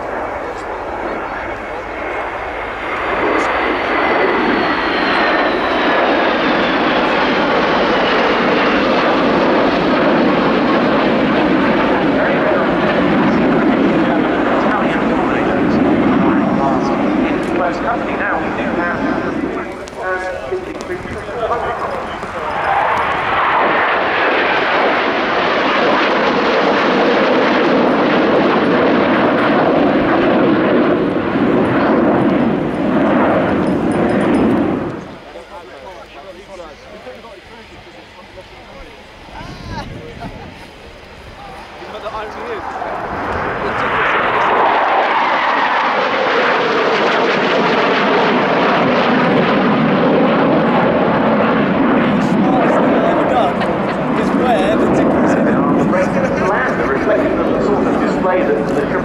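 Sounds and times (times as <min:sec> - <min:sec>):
jets passing overhead: 0:00.0 - 0:59.0.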